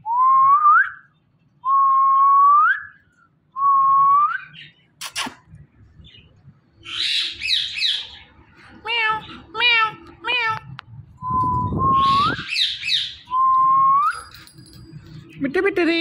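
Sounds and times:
parrot whistling rising notes: 11.2 - 14.1.

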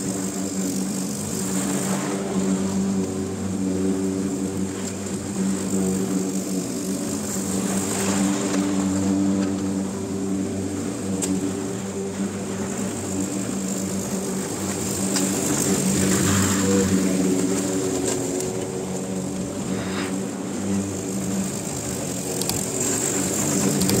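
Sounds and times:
faint clicks: 21.5 - 24.0.

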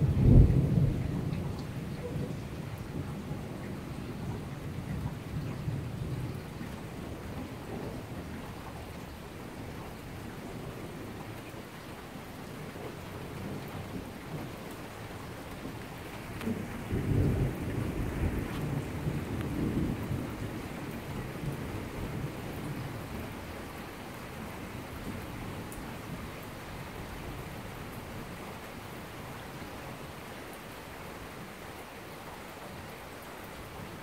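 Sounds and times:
thunder rumble: 0.0 - 8.4, 12.8 - 23.4
steady rain falling: 0.0 - 34.0.

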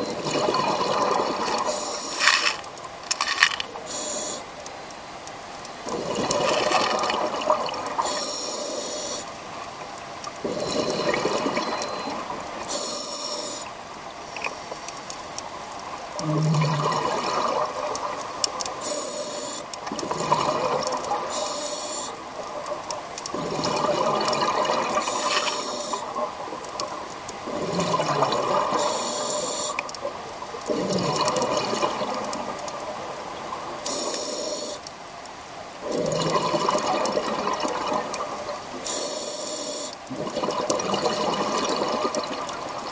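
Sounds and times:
exhaled bubbles underwater: 0.0 - 2.0, 5.8 - 8.2, 10.4 - 12.6, 16.1 - 19.0, 19.9 - 34.3, 35.8 - 38.9, 40.1 - 42.9.

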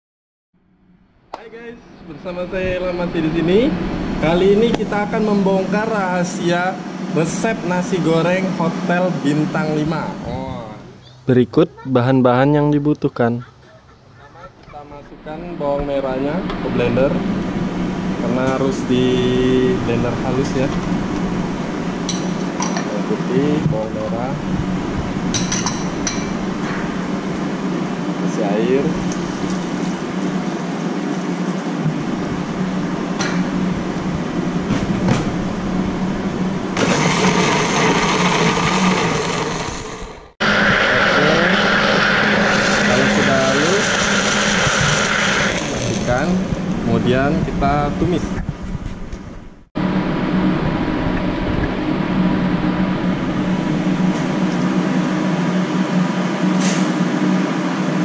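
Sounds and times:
steady hum: 0.6 - 58.0
electric blender running: 35.6 - 47.0.

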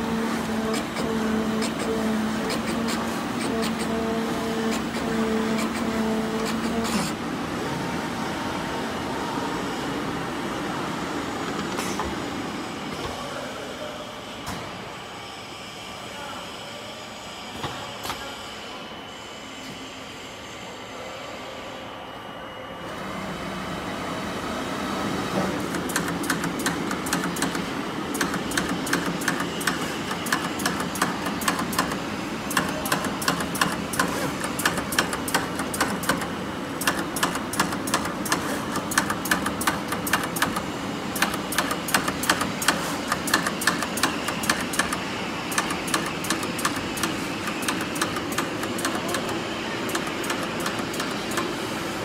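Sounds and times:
rapid sharp clicking: 25.7 - 40.6, 41.2 - 51.5.

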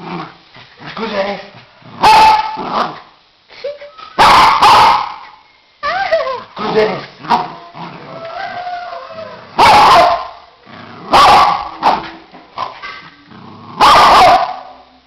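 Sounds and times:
dog barking loudly: 2.0 - 2.6, 4.2 - 5.2, 9.6 - 10.4, 11.1 - 12.0, 13.8 - 14.7
dog whining and howling: 5.8 - 6.6, 7.6 - 9.7.

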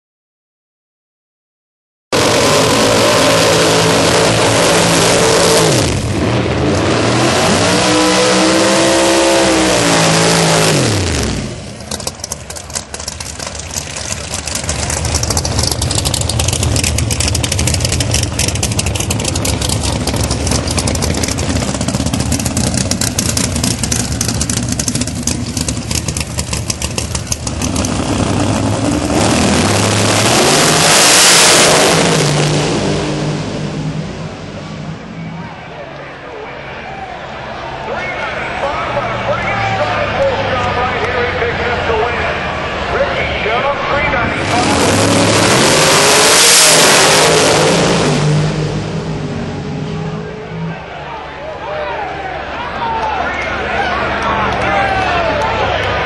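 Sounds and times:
engine revving: 2.1 - 35.3, 38.2 - 51.0
cars launching at full throttle: 2.1 - 56.0
rough crackling engine idle: 11.6 - 28.9.

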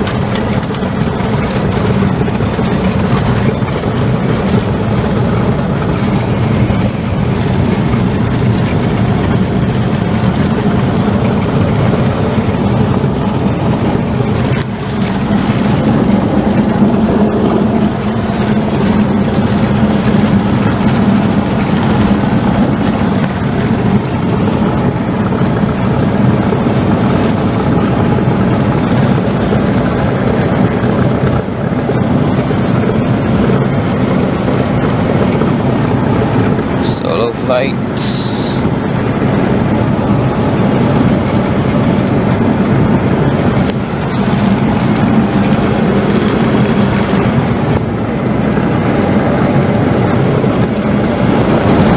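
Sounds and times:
propeller plane engine droning: 0.0 - 51.9.

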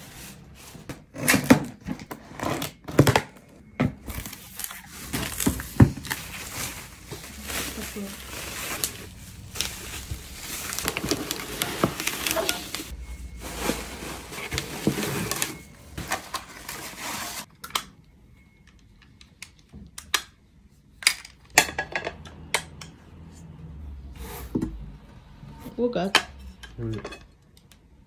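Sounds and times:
bubble wrap rustling and crinkling: 4.1 - 17.5.

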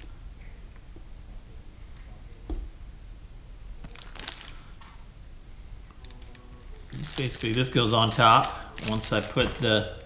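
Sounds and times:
plastic bag rustling clicks: 6.0 - 9.8.

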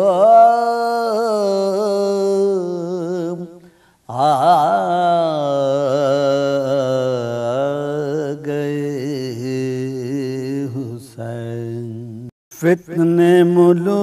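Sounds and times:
man chanting: 0.0 - 14.0
man breathing in: 3.6 - 4.1.

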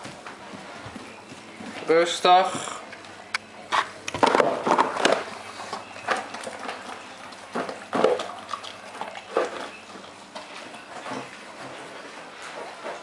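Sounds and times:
dog eating from a bowl: 3.6 - 13.0.

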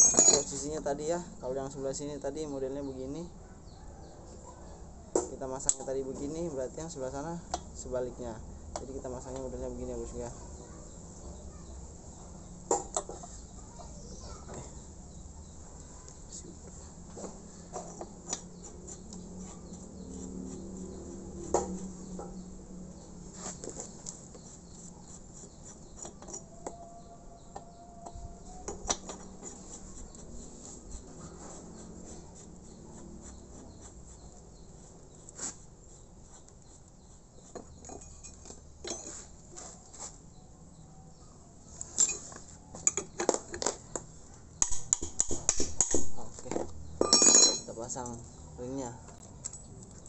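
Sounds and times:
light metallic clicks and clinks: 0.0 - 0.7, 37.8 - 39.2, 41.8 - 44.0, 47.0 - 48.3, 49.2 - 50.0.

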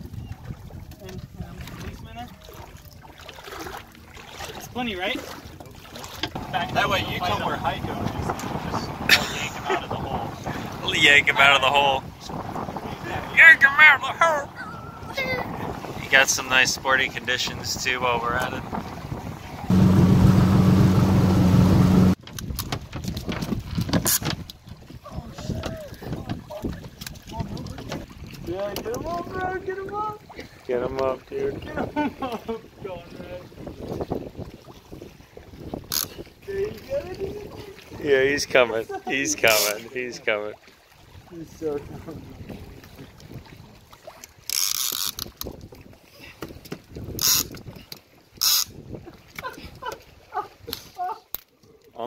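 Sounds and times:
wind and water noise: 0.0 - 52.0
outboard motor running: 17.4 - 22.2
fishing reel drag buzzing: 44.5 - 45.3, 48.4 - 48.7
fishing reel clicking: 44.5 - 45.5, 47.2 - 47.6, 48.4 - 48.7.

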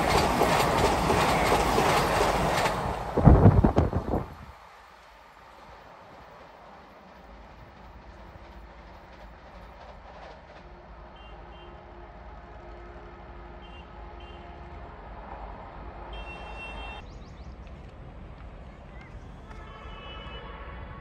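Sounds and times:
electric train rumbling: 0.0 - 20.0
two-tone train horn: 11.1 - 15.0, 15.9 - 17.0, 19.4 - 21.0.

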